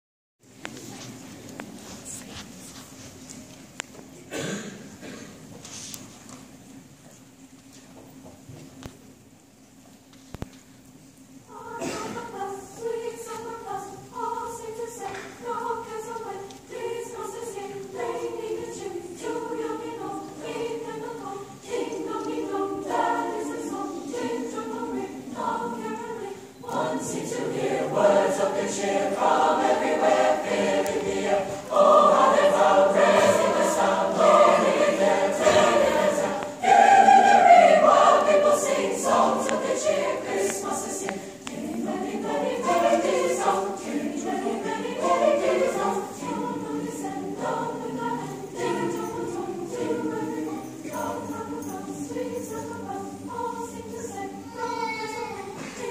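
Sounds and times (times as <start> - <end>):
mixed choir singing: 11.4 - 55.9.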